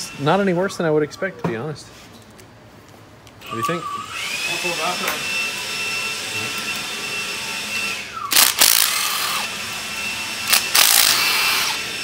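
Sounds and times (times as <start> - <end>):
cordless drill whirring: 3.4 - 12.0.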